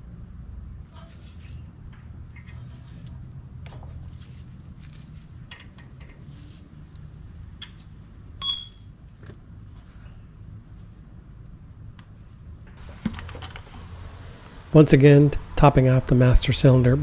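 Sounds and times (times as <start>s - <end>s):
low steady hum: 0.0s - 17.0s
metal tools clicking: 8.4s - 8.9s
sharp ringing metallic clink: 8.4s - 9.0s.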